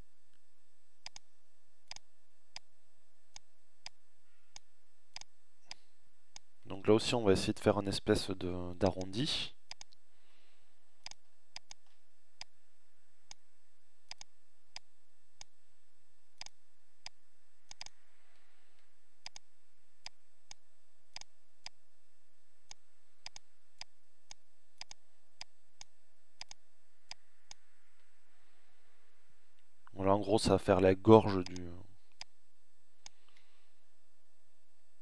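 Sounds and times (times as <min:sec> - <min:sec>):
faint background hiss: 0:00.0 - 0:35.0
faint steady tone: 0:00.0 - 0:35.0
computer mouse clicking: 0:01.0 - 0:01.3, 0:01.9 - 0:02.7, 0:03.3 - 0:06.5, 0:09.7 - 0:10.0, 0:11.0 - 0:12.5, 0:14.1 - 0:15.5, 0:16.4 - 0:18.0, 0:19.2 - 0:21.8, 0:22.7 - 0:28.1, 0:31.4 - 0:32.3.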